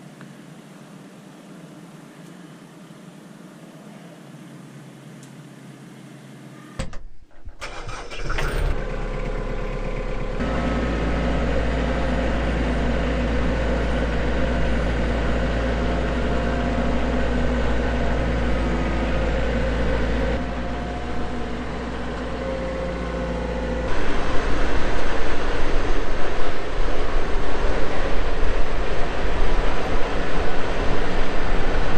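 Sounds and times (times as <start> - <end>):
tractor diesel engine running: 7.2 - 31.9.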